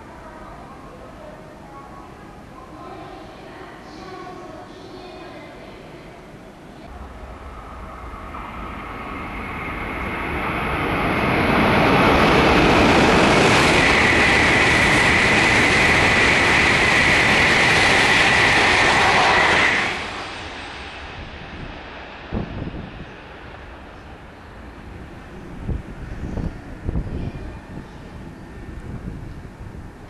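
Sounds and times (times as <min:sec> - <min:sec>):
high train whine: 0:00.0 - 0:30.0
bullet train rushing past: 0:06.3 - 0:30.0.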